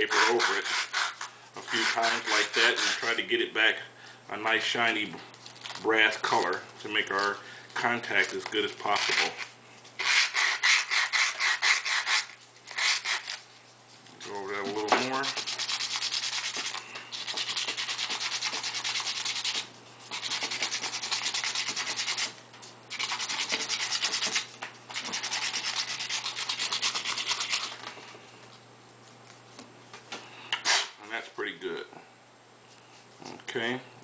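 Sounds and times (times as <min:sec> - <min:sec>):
sandpaper rubbing on metal: 0:00.0 - 0:03.2, 0:10.0 - 0:13.4, 0:14.6 - 0:22.3, 0:22.9 - 0:27.8.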